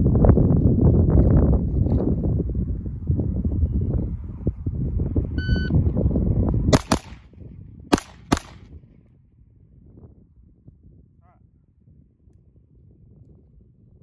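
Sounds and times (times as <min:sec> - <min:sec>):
wind rumbling on microphone: 0:00.0 - 0:14.0
shot timer beep: 0:05.4 - 0:05.7
pistol shots: 0:06.7 - 0:07.2, 0:07.9 - 0:08.7.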